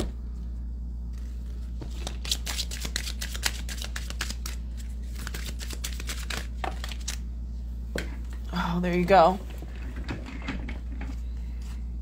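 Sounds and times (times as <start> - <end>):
steady low hum: 0.0 - 12.0
cards being shuffled: 1.1 - 7.2.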